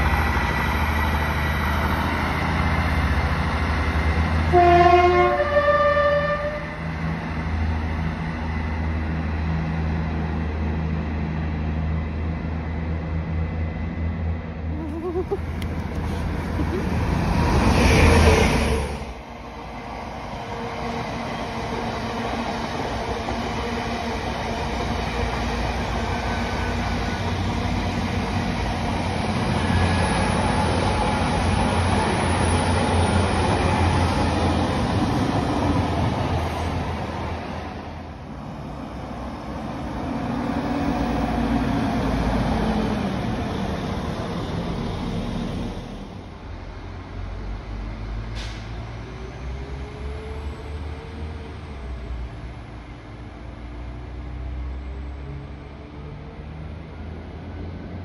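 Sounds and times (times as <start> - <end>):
passenger train passing with low hum: 0.0 - 58.0
train carriages rushing past: 15.0 - 46.2
loud burst of train noise: 15.9 - 46.6, 48.0 - 52.0.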